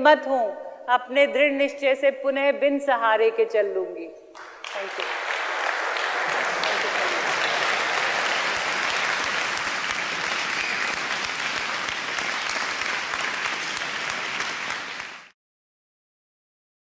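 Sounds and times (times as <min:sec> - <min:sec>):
audience applauding: 0:04.4 - 0:15.4.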